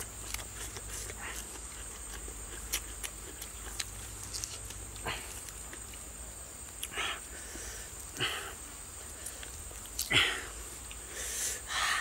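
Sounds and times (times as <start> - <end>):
wet chewing smacks: 0.0 - 6.1
breathy sniffs: 10.1 - 12.0.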